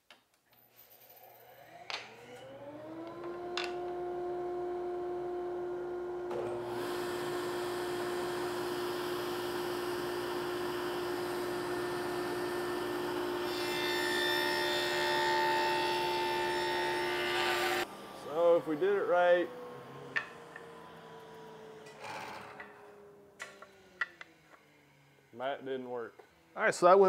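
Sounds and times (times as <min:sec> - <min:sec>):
table saw motor hum: 0:01.6 - 0:26.6
saw blade cutting wood: 0:10.7 - 0:17.9.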